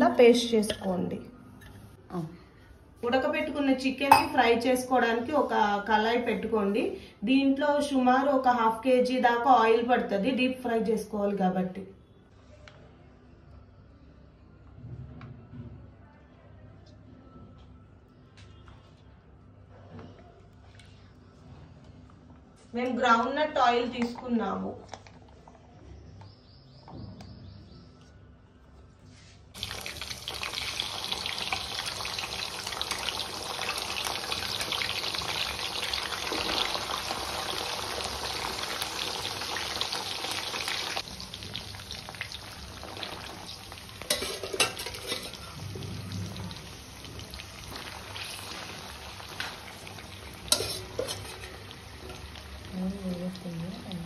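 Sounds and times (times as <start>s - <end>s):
chicken deep-frying in oil: 29.6s - 54.0s
steel spoon clinking on pan: 44.1s - 45.4s, 50.5s - 51.6s.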